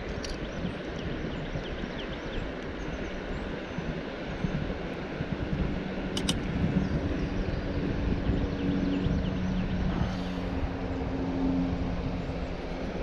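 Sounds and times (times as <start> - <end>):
distant engine droning: 0.0 - 13.0
low rumbling wind: 0.0 - 13.0
sharp clicks: 6.2 - 6.5.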